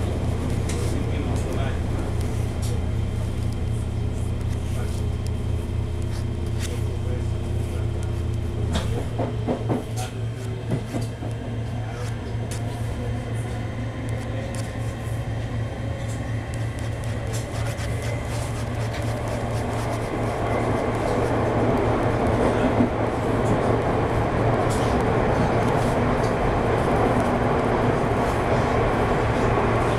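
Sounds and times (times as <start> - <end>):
train cabin hum: 0.0 - 29.9.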